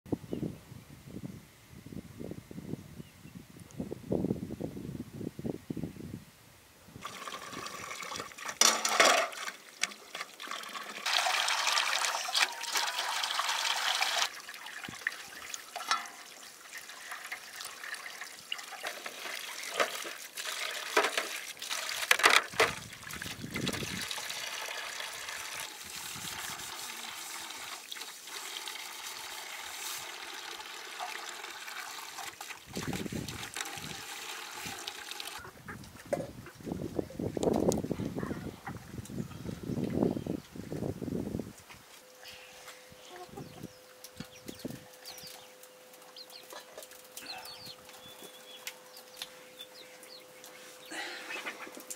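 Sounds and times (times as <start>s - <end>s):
running water: 7.0s - 35.4s.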